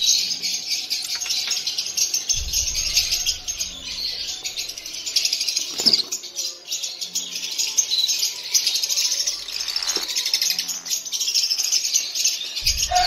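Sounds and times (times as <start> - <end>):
lovebirds chirping: 0.0 - 13.0
low rumble: 2.3 - 5.0, 12.6 - 13.0.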